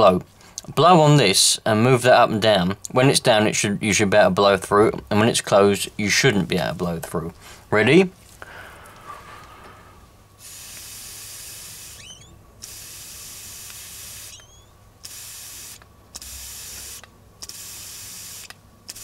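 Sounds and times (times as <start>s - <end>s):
air hissing through carburettor: 10.4s - 19.0s.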